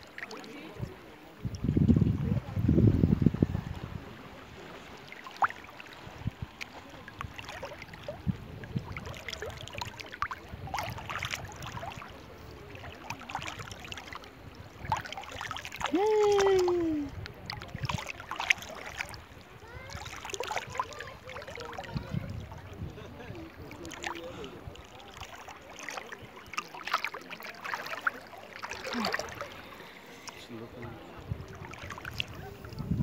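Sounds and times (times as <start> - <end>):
seawater sloshing and splashing: 0.0 - 33.0
water droplets: 5.0 - 12.1
person calling out: 15.9 - 17.1.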